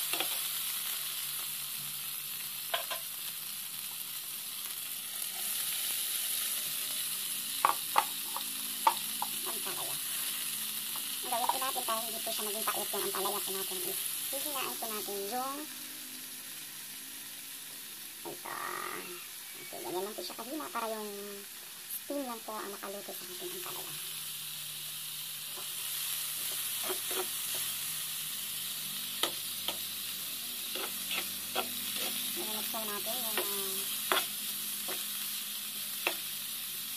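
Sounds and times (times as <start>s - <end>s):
vegetables sizzling in oil: 0.0s - 36.9s
spatula clacking against pan: 33.3s - 34.3s.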